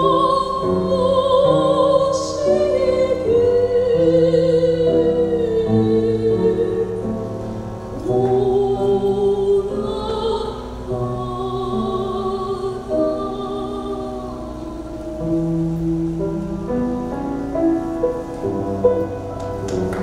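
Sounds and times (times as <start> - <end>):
woman singing operatically: 0.0 - 7.1, 8.0 - 15.2
piano accompaniment: 0.0 - 20.0.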